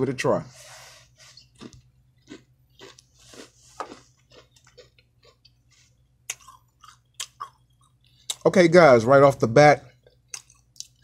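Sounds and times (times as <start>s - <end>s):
chewing crunchy crisp: 1.2s - 8.4s, 9.8s - 11.0s.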